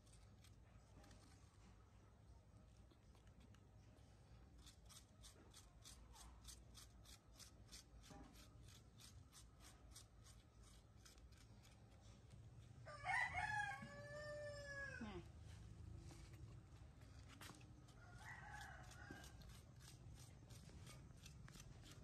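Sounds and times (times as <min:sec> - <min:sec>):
rooster crowing: 0:12.8 - 0:15.2, 0:18.0 - 0:19.4.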